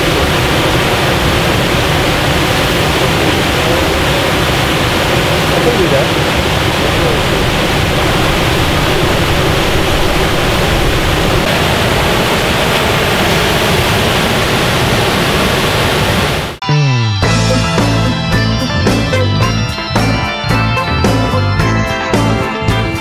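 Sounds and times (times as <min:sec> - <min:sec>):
water rushing from dam outflow: 0:00.0 - 0:16.6.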